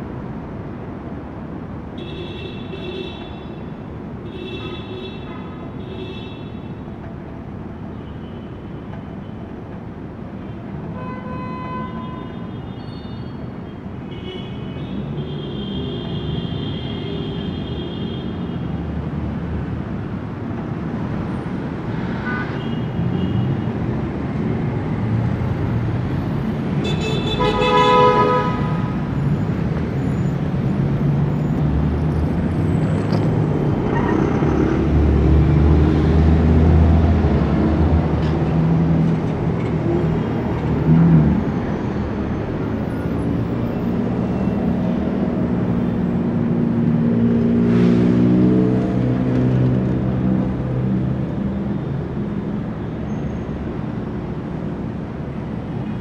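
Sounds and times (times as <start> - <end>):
traffic drone: 0.0 - 56.0
car horn: 11.0 - 13.0, 26.8 - 28.9.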